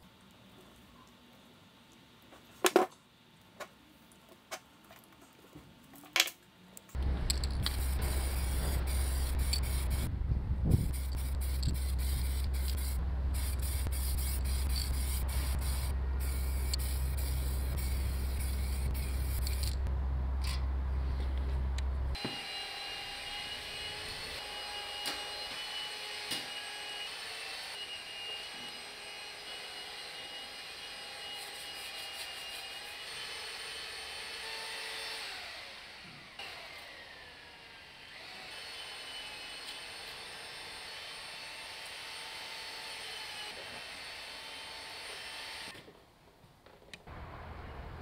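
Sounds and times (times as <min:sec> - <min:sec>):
low machine hum: 0:07.0 - 0:22.2
compressed air spraying: 0:07.3 - 0:10.1, 0:10.7 - 0:19.8.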